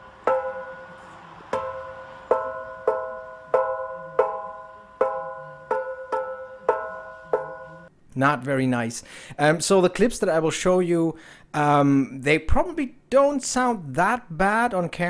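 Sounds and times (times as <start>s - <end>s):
exhaust silencer ringing when flicked: 0.0s - 7.9s.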